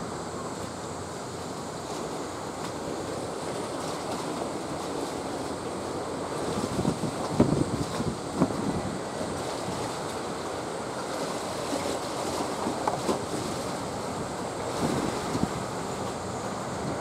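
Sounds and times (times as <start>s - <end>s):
wind buffeting microphone: 6.3s - 10.5s, 12.3s - 17.0s.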